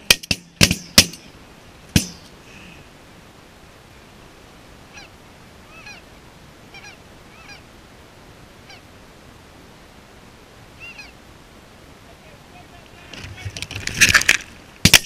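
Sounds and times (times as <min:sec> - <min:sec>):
geese honking: 0:04.9 - 0:07.7, 0:08.6 - 0:08.9, 0:10.8 - 0:11.2.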